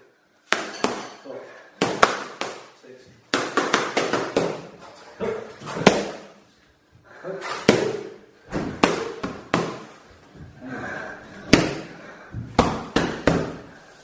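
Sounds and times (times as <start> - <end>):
boxing gloves hitting mitts: 0.5 - 1.2, 1.8 - 2.7, 3.3 - 4.8, 5.6 - 6.3, 7.6 - 10.0, 11.4 - 13.7.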